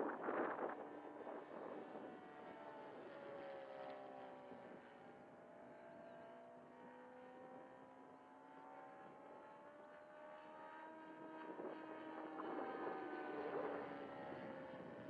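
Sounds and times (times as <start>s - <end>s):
distant model plane engine drone: 0.0s - 15.0s.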